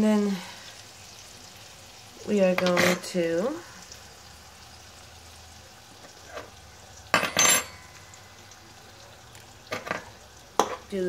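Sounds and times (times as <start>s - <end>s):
chicken sizzling in a pan: 0.0s - 11.0s
metal cookware clattering: 2.5s - 3.2s, 6.2s - 7.8s, 9.6s - 10.9s.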